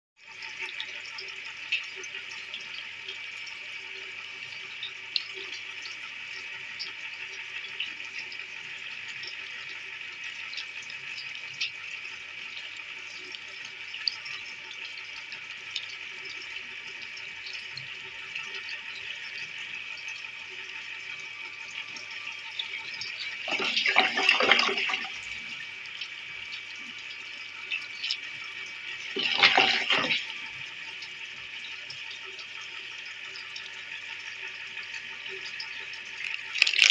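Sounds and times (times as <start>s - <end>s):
water rushing down drain: 22.8s - 30.6s, 36.0s - 36.9s.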